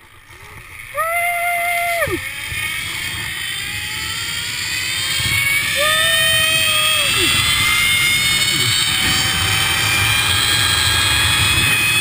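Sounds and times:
zip-line pulleys on steel cable: 0:00.0 - 0:12.0
person whooping: 0:00.9 - 0:02.3, 0:05.7 - 0:07.8.

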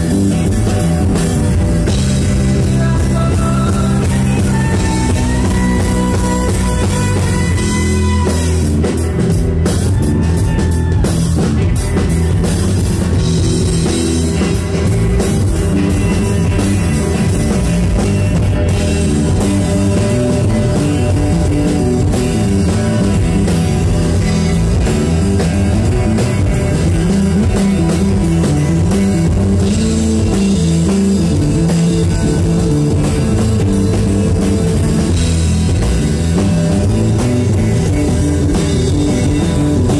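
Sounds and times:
drum kit: 0:00.0 - 0:39.9
electric guitar: 0:00.0 - 0:39.9.

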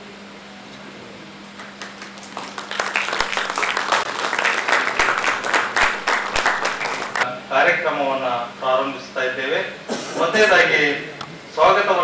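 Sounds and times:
audience applauding: 0:01.6 - 0:07.2.

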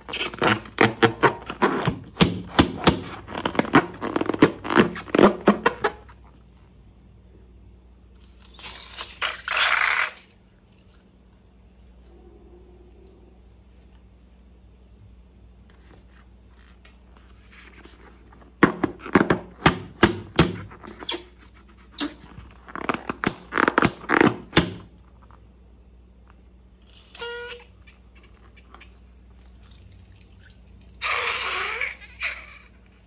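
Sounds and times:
slime squeak: 0:00.0 - 0:02.0, 0:08.4 - 0:10.3, 0:20.8 - 0:22.9, 0:26.8 - 0:29.0, 0:31.0 - 0:33.0.

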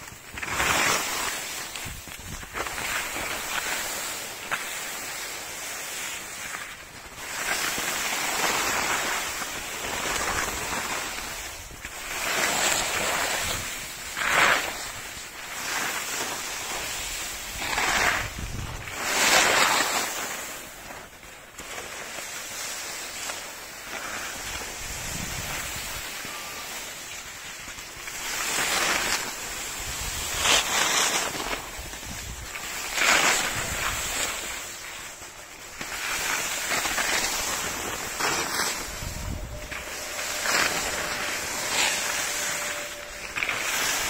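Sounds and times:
ski edges scraping on snow: 0:00.0 - 0:44.0
wind on microphone: 0:17.0 - 0:19.1, 0:24.5 - 0:26.6, 0:37.3 - 0:44.0.

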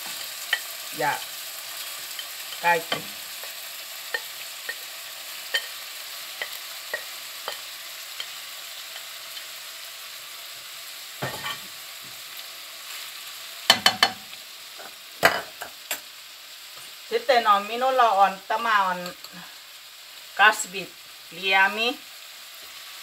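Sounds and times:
meat and vegetables sizzling in wok: 0:00.0 - 0:23.0
spatula knocking against pan: 0:13.7 - 0:14.2.

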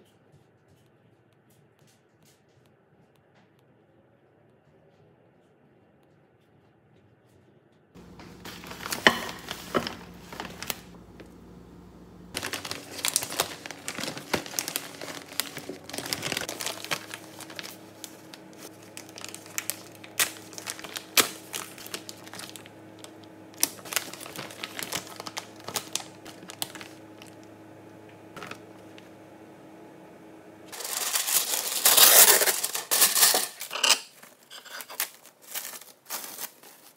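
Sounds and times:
plastic packaging crinkling: 0:08.0 - 0:11.6, 0:12.3 - 0:27.5, 0:28.4 - 0:29.0, 0:30.7 - 0:36.9.

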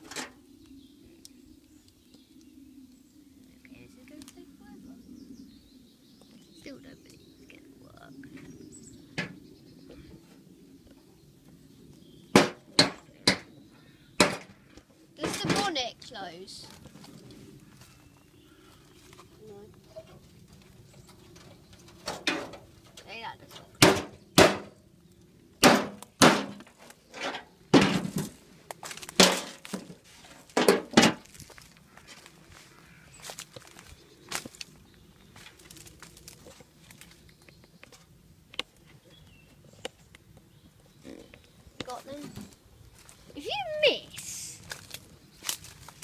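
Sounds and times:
hammer striking rusty metal: 0:12.4 - 0:13.5, 0:14.2 - 0:14.6, 0:23.8 - 0:24.8, 0:25.6 - 0:28.3
hard bangs on metal truck: 0:14.2 - 0:14.6, 0:23.8 - 0:24.7, 0:25.6 - 0:26.6.

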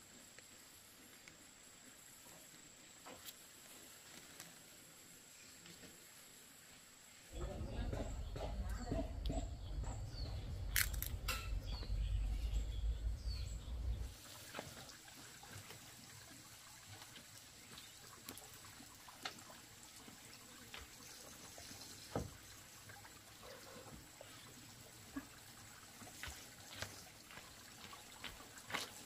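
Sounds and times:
loud low rumble: 0:09.2 - 0:14.1
water trickling into metal basin: 0:09.9 - 0:28.8.

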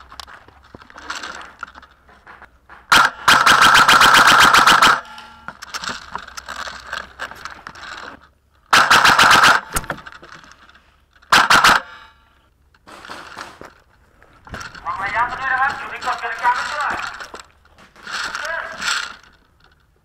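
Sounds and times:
airsoft rifle automatic bursts: 0:02.9 - 0:05.1, 0:08.7 - 0:09.7, 0:11.3 - 0:11.9.

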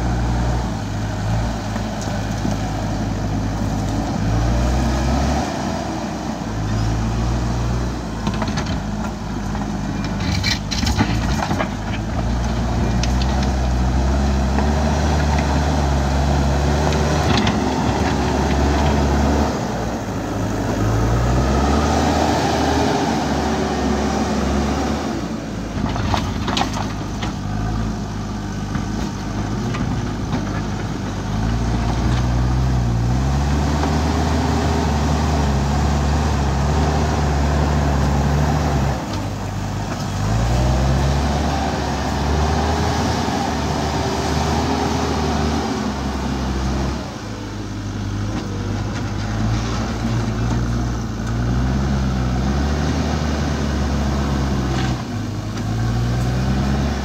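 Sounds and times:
diesel engine revving: 0:00.0 - 0:57.0.

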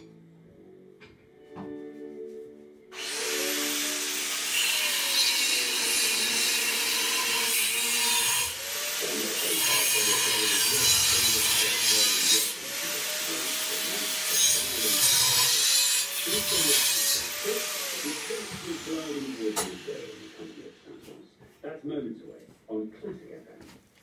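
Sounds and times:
power grinder on metal: 0:03.0 - 0:20.8.

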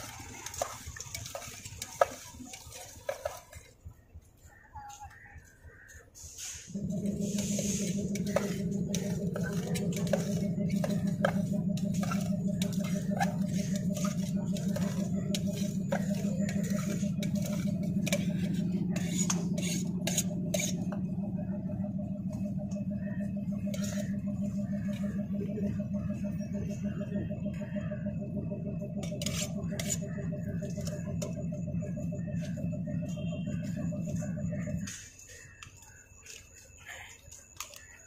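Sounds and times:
steady low hum: 0:06.6 - 0:36.1.

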